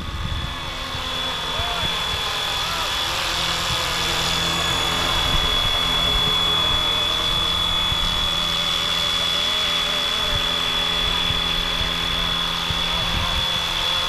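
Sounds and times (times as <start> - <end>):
wind buffeting microphone: 0.0 - 9.4
rc helicopter motor whine: 0.0 - 14.0.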